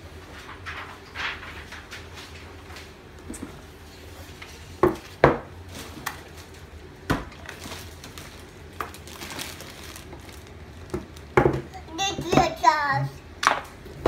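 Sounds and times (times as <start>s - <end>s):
plastic cup knocking on counter: 10.9s - 12.5s.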